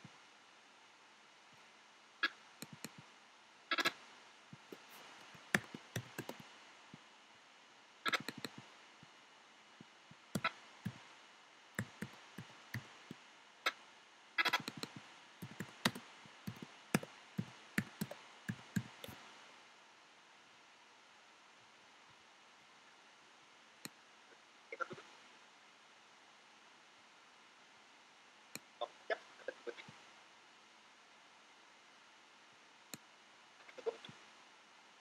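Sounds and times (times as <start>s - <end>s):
keyboard typing clicks: 2.6s - 3.0s, 4.7s - 6.5s, 8.1s - 8.7s, 10.4s - 11.0s, 11.8s - 13.2s, 14.4s - 19.2s.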